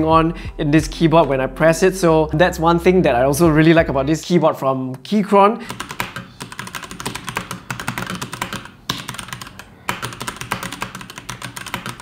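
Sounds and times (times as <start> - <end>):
mechanical keyboard typing: 5.7 - 12.0.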